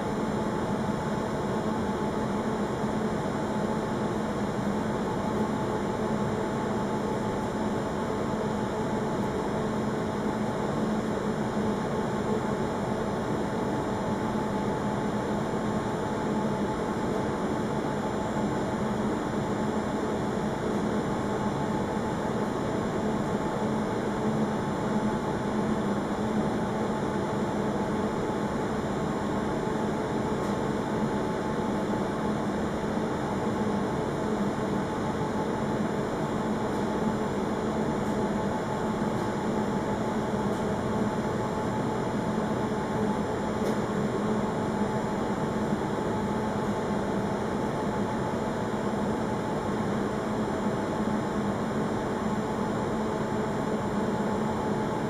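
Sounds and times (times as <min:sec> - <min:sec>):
mechanical hum: 0:00.0 - 0:55.0.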